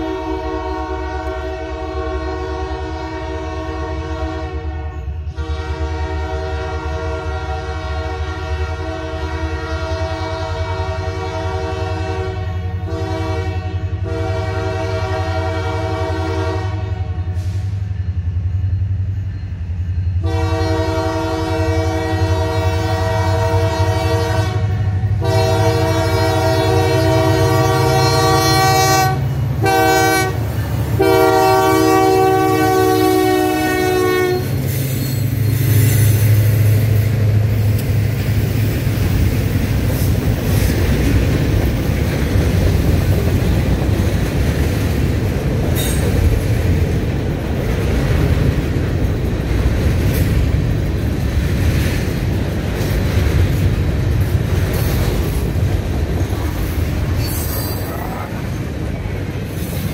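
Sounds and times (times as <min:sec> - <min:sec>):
locomotive air horn: 0:00.0 - 0:17.8, 0:20.2 - 0:36.3
diesel engines rumbling: 0:10.0 - 0:59.9.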